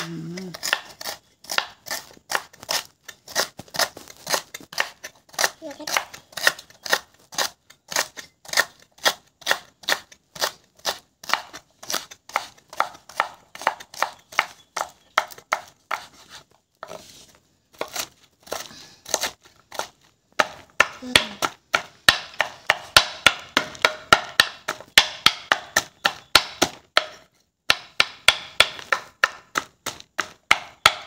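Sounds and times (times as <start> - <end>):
knife cutting on wooden board: 15.2 - 20.6.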